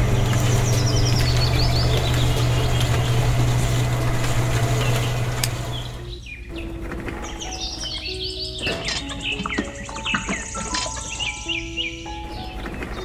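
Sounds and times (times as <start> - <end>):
small electric motor humming: 0.0 - 6.0
birds chirping: 0.0 - 13.0.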